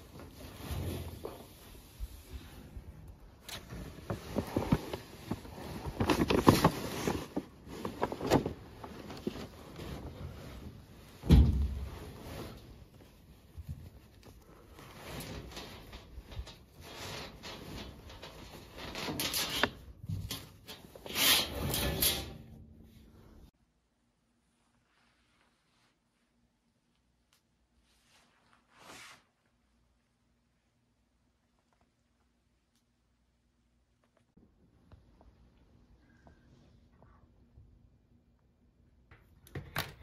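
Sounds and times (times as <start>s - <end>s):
objects clattering and rustling: 0.0s - 22.7s.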